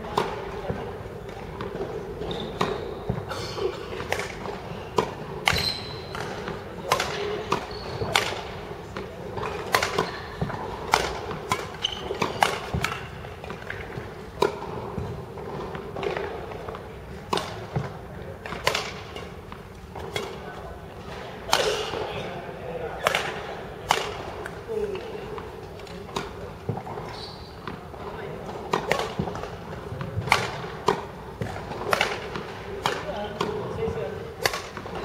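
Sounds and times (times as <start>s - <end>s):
shoes squeaking: 1.3s - 14.2s, 24.4s - 30.2s
rackets striking shuttlecock: 4.0s - 16.5s, 17.3s - 22.1s, 22.9s - 35.0s.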